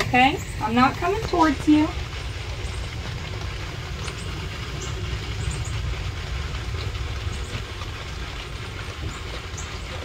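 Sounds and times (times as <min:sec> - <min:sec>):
low rumble: 0:00.0 - 0:10.0.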